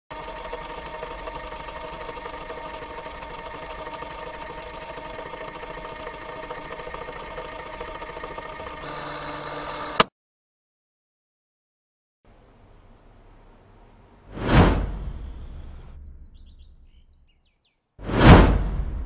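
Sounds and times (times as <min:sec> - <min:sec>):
film projector clatter: 0:00.1 - 0:10.1
projector hum: 0:12.3 - 0:14.3.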